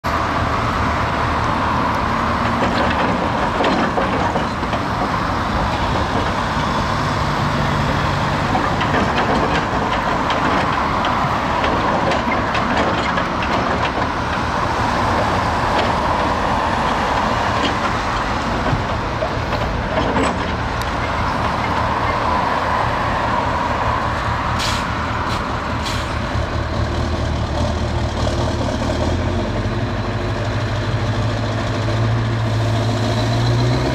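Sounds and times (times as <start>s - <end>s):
excavator diesel engine working: 0.0s - 33.9s
passing road traffic: 0.0s - 33.9s
knocks and clatter: 2.3s - 22.3s.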